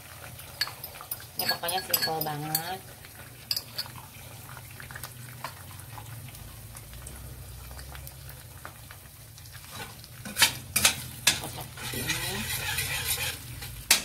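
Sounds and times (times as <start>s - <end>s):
egg sizzling in hot oil: 0.0s - 14.0s
glass bowl clinking on pot: 0.6s - 2.8s, 3.5s - 4.0s.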